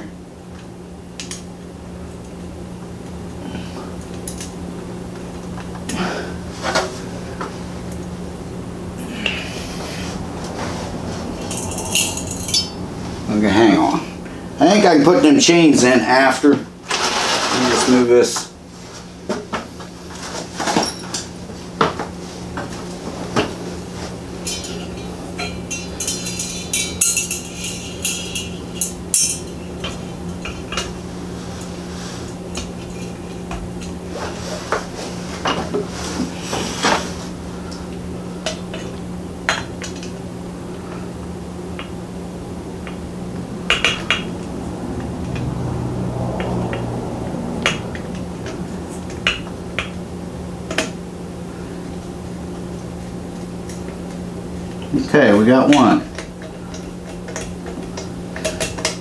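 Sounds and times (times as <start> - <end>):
steady low hum: 0.0 - 59.0
glass globe and screws clinking: 11.4 - 12.8, 24.4 - 30.0
rattling: 24.4 - 30.9.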